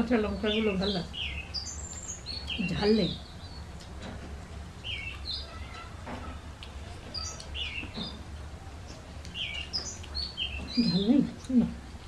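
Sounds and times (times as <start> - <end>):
small birds chirping: 0.0 - 12.0
chewing: 8.9 - 10.3.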